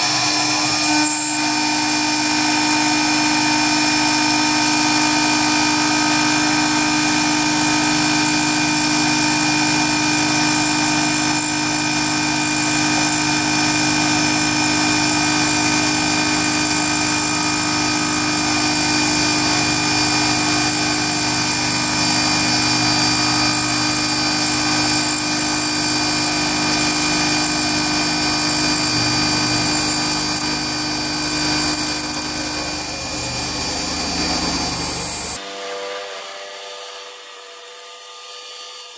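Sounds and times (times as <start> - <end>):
router spindle whine: 0.0 - 38.9
hiss of cutting metal: 0.5 - 21.4.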